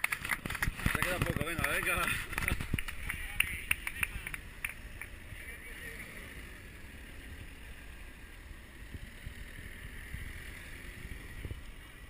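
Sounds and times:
car engines passing: 0:00.0 - 0:12.0
wind buffeting microphone: 0:00.2 - 0:03.8.

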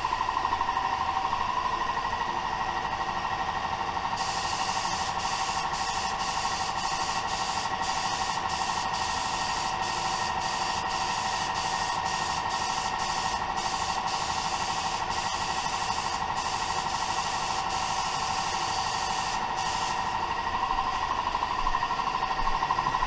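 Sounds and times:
steady hum: 0:00.0 - 0:23.0
spray gun hissing: 0:04.2 - 0:20.2.

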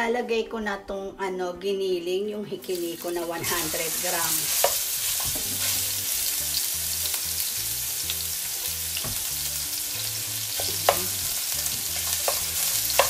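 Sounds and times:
meat sizzling in a frying pan: 0:02.6 - 0:13.0
wooden spatula scraping and tapping pan: 0:04.4 - 0:05.9, 0:11.8 - 0:13.0.

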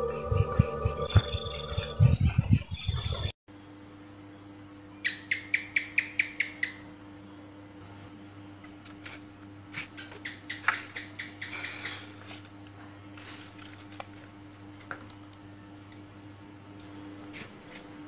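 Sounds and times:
insects trilling: 0:00.0 - 0:03.3, 0:04.0 - 0:18.0
low hum: 0:00.0 - 0:03.3
sharp chirps: 0:00.0 - 0:03.3.

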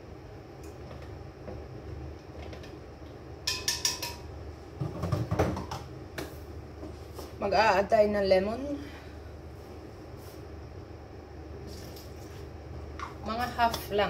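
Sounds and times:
low steady hum: 0:00.0 - 0:14.0
dishes clinking: 0:03.5 - 0:04.3.

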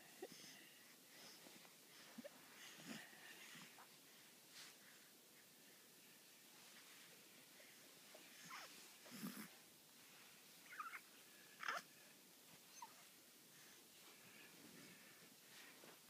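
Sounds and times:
newborn baby squeaks and grunts: 0:10.7 - 0:11.0, 0:11.6 - 0:11.9.

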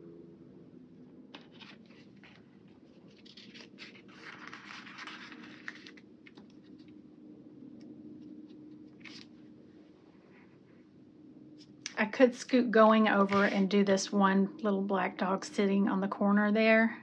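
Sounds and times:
sticker sheet rustling: 0:01.4 - 0:06.9, 0:13.1 - 0:13.8.

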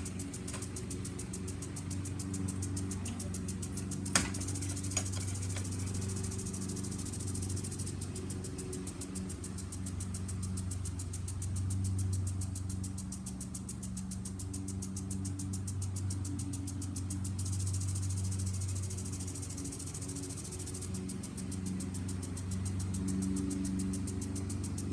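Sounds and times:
lawn mower engine running: 0:00.0 - 0:11.0
sprinkler ticking rapidly: 0:00.0 - 0:24.9.

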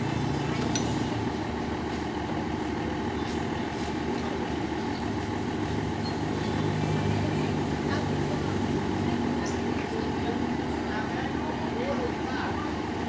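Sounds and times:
diesel generator idling: 0:00.0 - 0:13.0.

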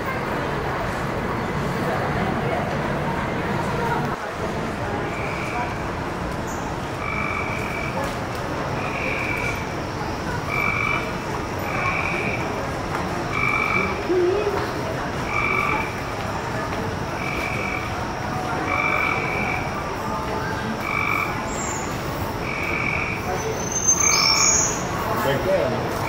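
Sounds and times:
steady background noise: 0:00.0 - 0:26.0
frog croaking: 0:05.1 - 0:05.8, 0:07.0 - 0:08.0, 0:08.8 - 0:09.8, 0:10.4 - 0:12.6, 0:13.3 - 0:14.2, 0:15.2 - 0:16.1, 0:17.2 - 0:18.0, 0:18.6 - 0:19.9, 0:20.8 - 0:21.8, 0:22.4 - 0:24.8.

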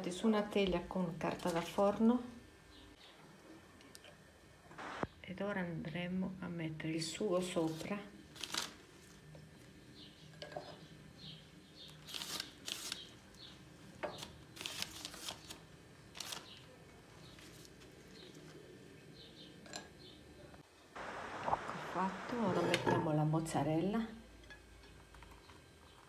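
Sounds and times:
paper rustling: 0:07.6 - 0:09.2, 0:12.0 - 0:13.5, 0:14.1 - 0:18.6.

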